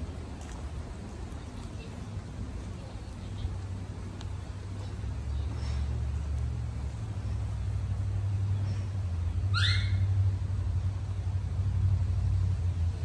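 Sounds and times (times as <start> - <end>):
rising whistle-like call: 9.5 - 10.1.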